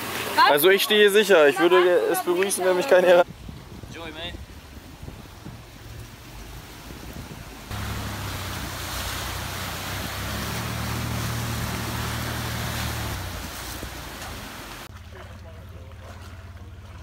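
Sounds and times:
muddy water surging and splashing: 0:00.0 - 0:17.0
engine humming under load: 0:05.4 - 0:17.0.

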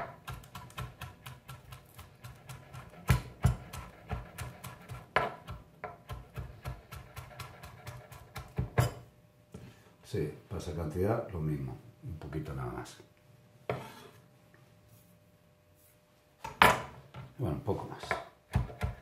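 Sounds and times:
knife chopping on plastic board: 0:00.0 - 0:09.0, 0:18.0 - 0:19.0.

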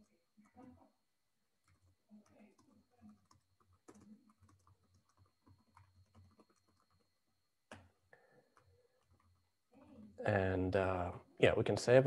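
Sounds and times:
typing on keyboard: 0:00.0 - 0:00.8, 0:01.6 - 0:10.0.

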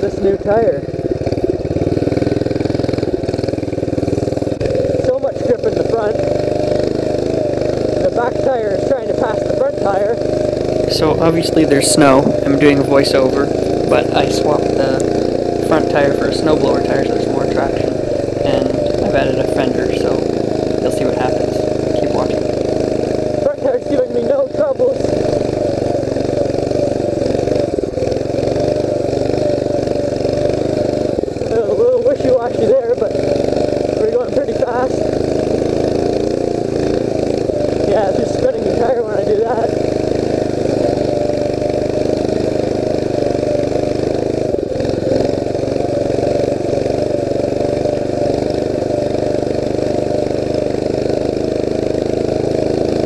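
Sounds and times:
mini bike engine running: 0:00.0 - 0:53.0.

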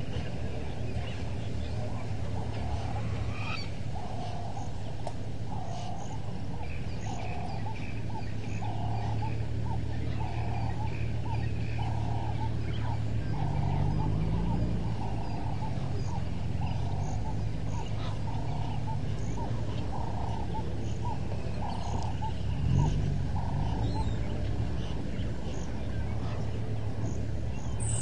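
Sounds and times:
vehicle engine low hum: 0:00.0 - 0:28.0
bird honking: 0:07.1 - 0:28.0.

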